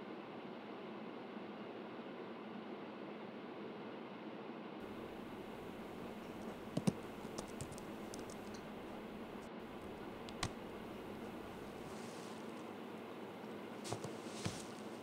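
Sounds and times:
low room hiss: 0.0s - 15.0s
laptop keys clicking: 6.0s - 8.7s, 10.0s - 11.6s.

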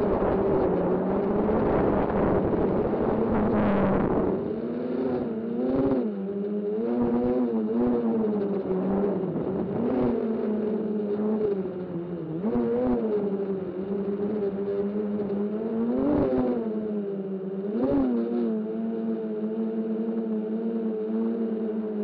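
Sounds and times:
drone propellers whirring: 0.0s - 12.3s.

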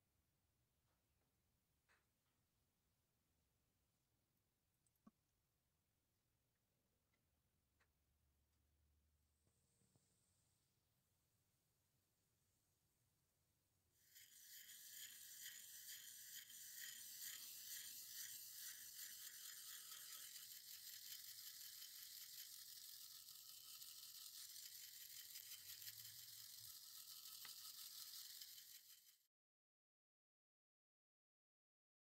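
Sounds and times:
brush scrubbing wet metal: 14.0s - 21.2s.

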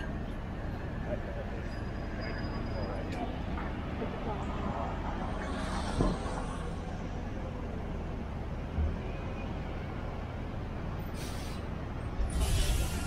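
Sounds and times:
low rumble of street traffic: 0.0s - 13.0s
pneumatic hiss: 11.2s - 11.6s, 12.3s - 13.0s.

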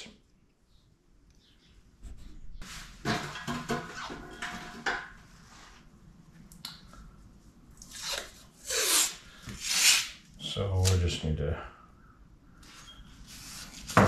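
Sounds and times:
masking tape ripping off roll: 7.9s - 10.2s.

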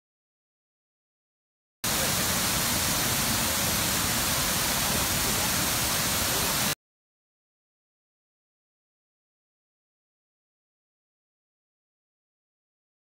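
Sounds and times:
waterfall rushing: 1.9s - 6.8s.

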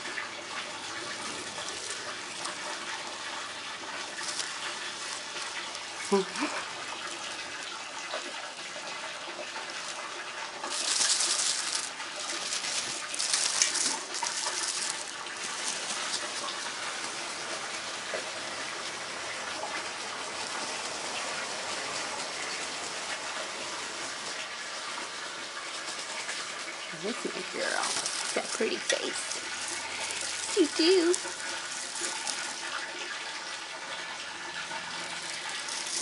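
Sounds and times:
running water: 0.0s - 36.0s
rustling hisses: 0.6s - 8.2s, 9.7s - 18.8s, 25.6s - 33.4s, 35.0s - 36.0s.

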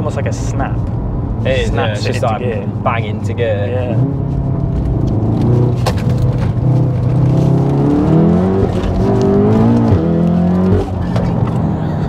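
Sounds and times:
car engine accelerating hard: 1.4s - 12.0s
gearbox shifting: 3.8s - 11.8s.

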